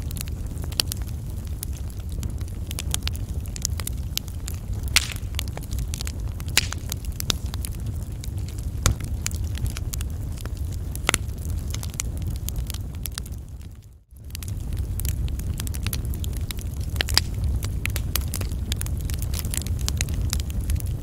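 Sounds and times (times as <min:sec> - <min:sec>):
wood fire crackling and popping: 0:00.0 - 0:21.0
low rumble: 0:02.7 - 0:13.5.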